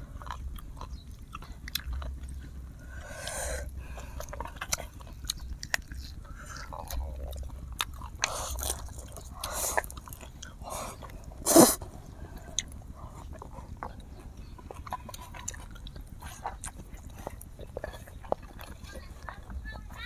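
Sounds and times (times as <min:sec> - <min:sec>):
chewing and lip smacks: 0:00.0 - 0:20.0
noodle slurping: 0:08.1 - 0:19.2.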